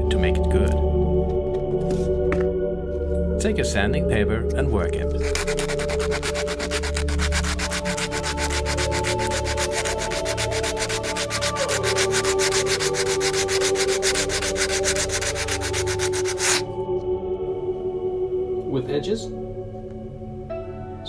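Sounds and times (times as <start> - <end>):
sandpaper rubbing on foam: 5.2 - 16.7.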